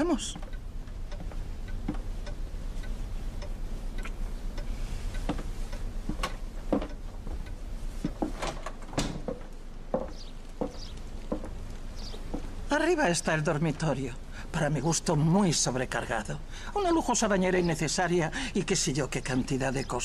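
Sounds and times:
low steady hum: 0.0s - 20.0s
footsteps on wooden floor: 5.2s - 12.6s.

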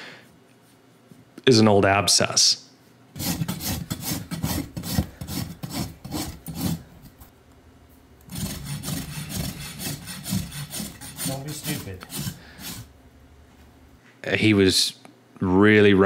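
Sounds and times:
rasp scraping hoof: 3.2s - 6.9s, 8.3s - 12.9s.

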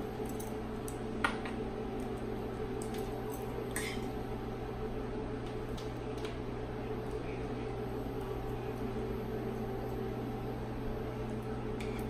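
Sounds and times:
low machine hum with hiss: 0.0s - 12.0s.

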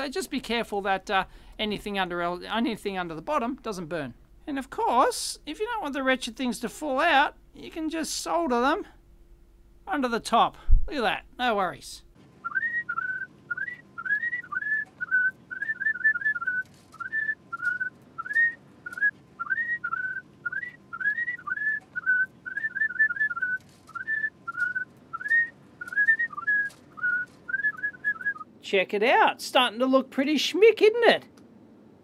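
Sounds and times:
person whistling a tune: 12.5s - 28.4s.

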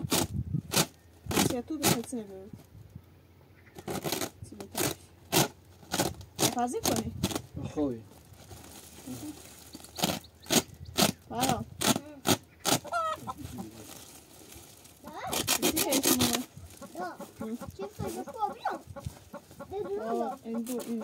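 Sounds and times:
chickens clucking: 9.7s - 13.9s, 15.0s - 21.0s.

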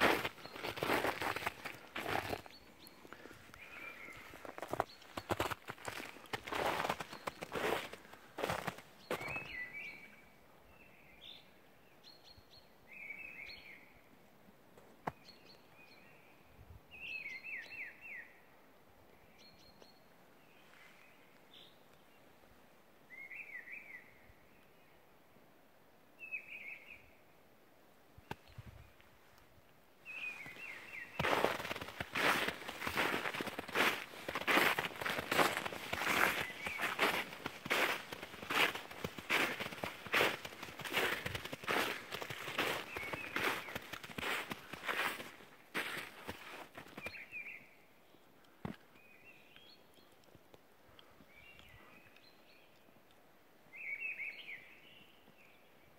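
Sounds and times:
footsteps crunching in snow: 0.0s - 9.7s, 30.2s - 47.2s
songbirds singing faintly: 0.0s - 55.9s.

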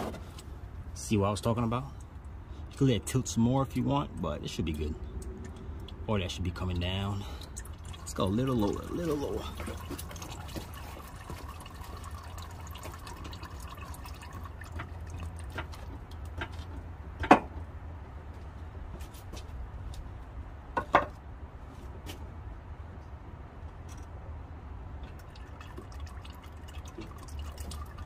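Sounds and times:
oil trickling and dripping: 0.2s - 17.8s, 24.8s - 28.0s.

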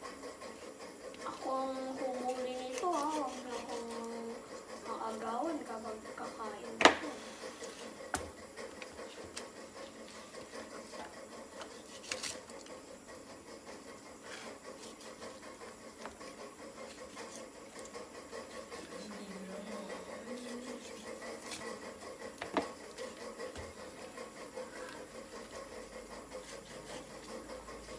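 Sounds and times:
knife cutting raw chicken: 2.7s - 4.0s, 11.5s - 12.6s, 14.2s - 18.9s, 25.9s - 27.5s.

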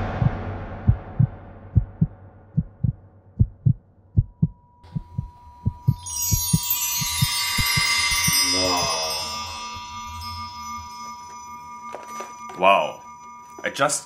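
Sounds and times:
music: 0.0s - 3.2s, 4.8s - 14.0s
steady high tone: 0.0s - 14.0s
heartbeat thumps: 0.1s - 8.4s
shimmering chime: 4.6s - 14.0s.

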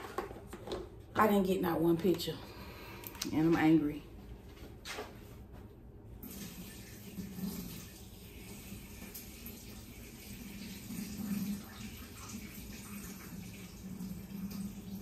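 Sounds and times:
water running from a tap: 6.2s - 15.0s.

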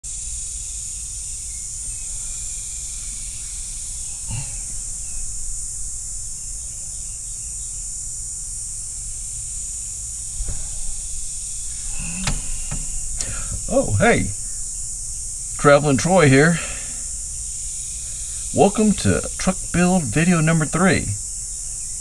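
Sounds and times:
insect chorus: 0.0s - 22.0s
low rumble: 10.1s - 20.3s.

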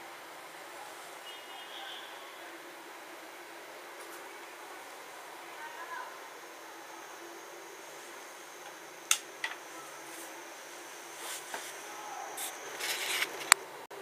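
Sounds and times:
room tone hiss: 0.0s - 14.0s
brief rustling: 11.2s - 13.6s.

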